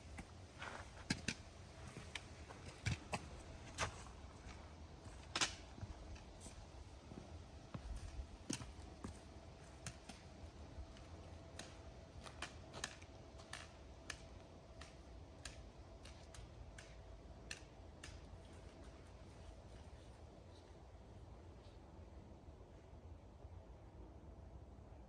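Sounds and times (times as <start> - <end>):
trekking poles clicking on gravel: 0.1 - 4.0, 8.0 - 20.0.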